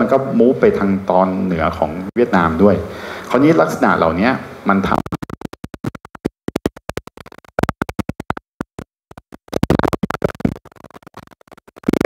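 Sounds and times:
man's stuttering amplified voice: 0.0 - 6.1.

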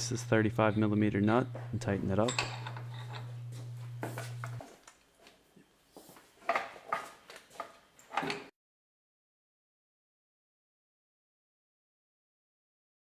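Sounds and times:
low steady hum: 0.0 - 4.6
metal clinks and clatters: 2.2 - 3.3.

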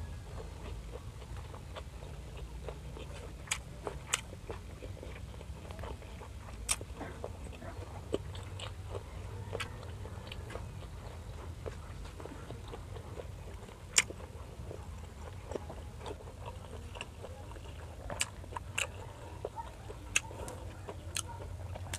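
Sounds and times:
chewing food with mouth closed: 0.0 - 21.9
low steady hum: 0.0 - 21.9.

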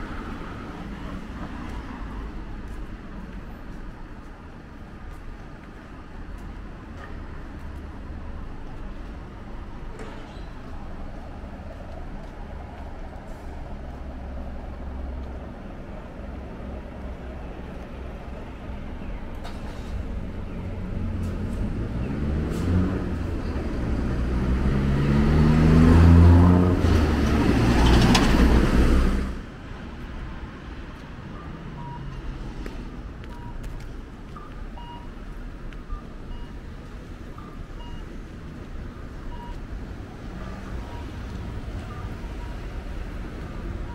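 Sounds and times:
vehicle passing close by: 20.7 - 29.4.

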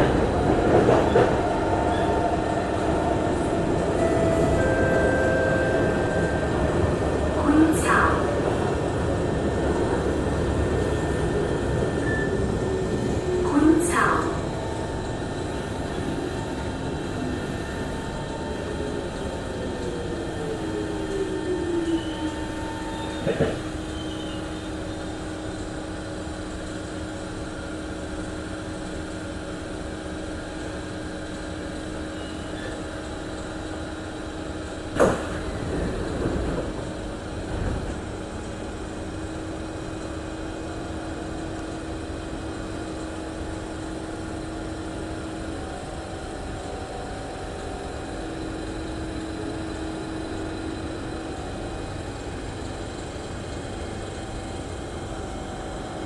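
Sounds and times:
train doors whirring open: 0.0 - 25.2, 31.9 - 45.5
train ventilation hum: 0.0 - 56.0.

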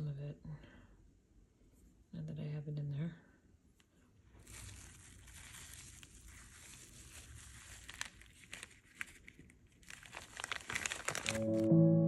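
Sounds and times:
cling wrap crinkling: 4.3 - 11.8.

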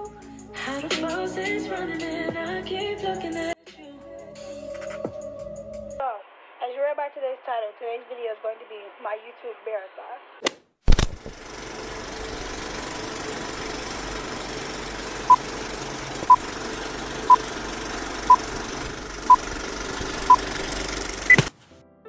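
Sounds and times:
film projector clatter and hiss: 10.9 - 21.5.

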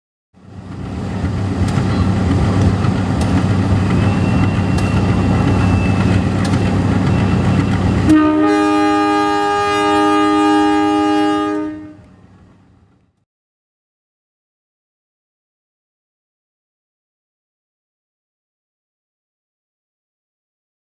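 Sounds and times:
locomotive engine running: 0.4 - 13.1
locomotive horn blast: 7.9 - 12.1.

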